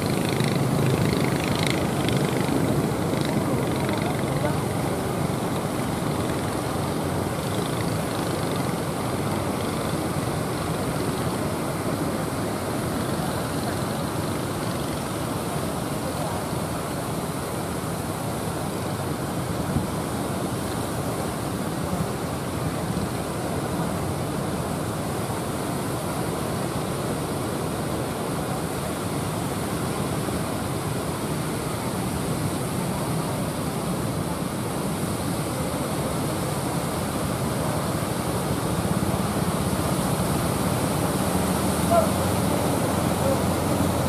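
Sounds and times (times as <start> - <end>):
heavy surf: 0.0 - 44.0
wind: 0.0 - 44.0
wave breaking: 37.0 - 44.0.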